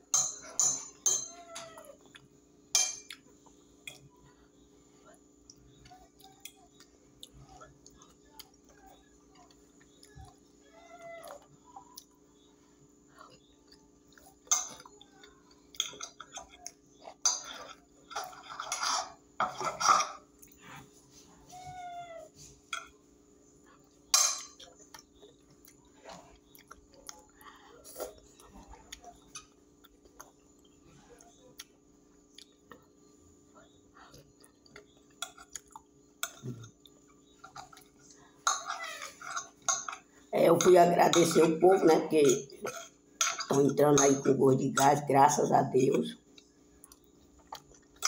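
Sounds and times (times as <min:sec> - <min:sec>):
fork clinking on glass plate: 0:00.1 - 0:01.4
chewing: 0:03.0 - 0:18.7, 0:23.6 - 0:40.2, 0:46.2 - 0:48.0.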